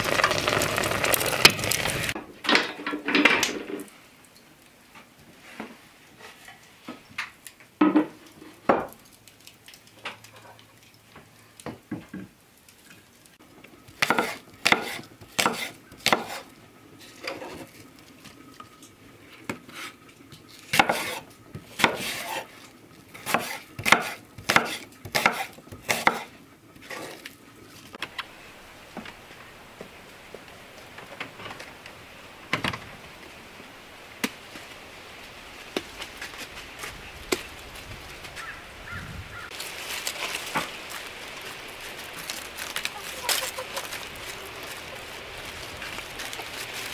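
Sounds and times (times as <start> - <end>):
outdoor background: 0.0 - 46.9
knife chopping on wooden board: 23.2 - 26.3.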